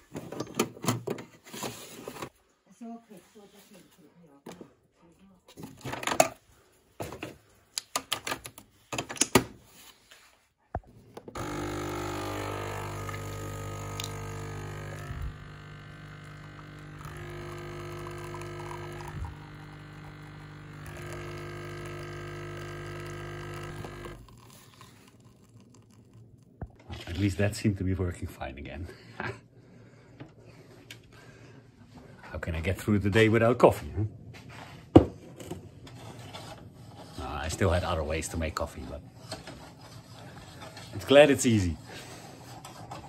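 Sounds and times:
coffee machine pump humming: 11.3s - 27.2s.

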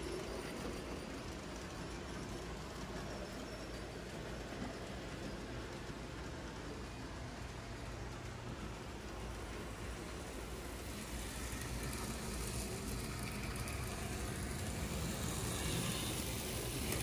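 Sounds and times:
hiss: 9.6s - 17.0s.

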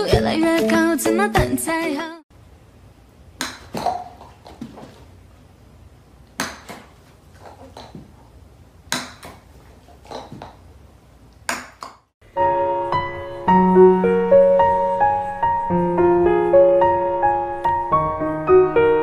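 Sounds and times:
golf club striking balls: 3.4s - 4.9s, 6.4s - 8.1s, 8.9s - 9.5s
piano music: 12.2s - 19.0s.

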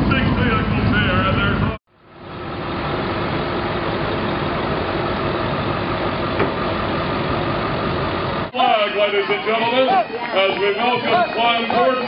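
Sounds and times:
truck engine running: 0.0s - 12.0s.

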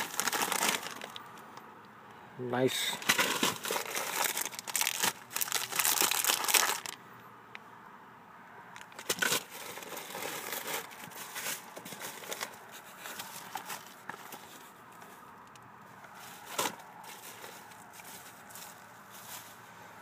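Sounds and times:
bubble wrap and plastic crinkling: 0.0s - 1.4s, 3.0s - 7.0s, 8.8s - 14.8s.

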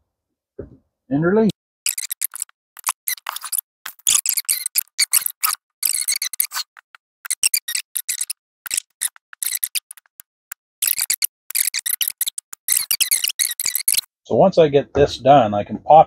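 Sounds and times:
plastic welder crackling: 1.9s - 10.2s.

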